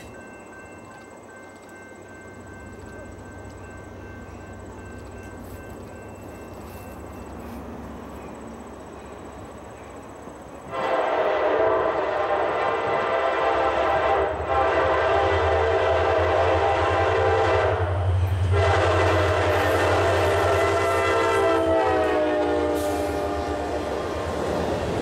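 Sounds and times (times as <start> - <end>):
train rumbling: 0.0 - 25.0
locomotive air horn blasts: 10.7 - 24.2.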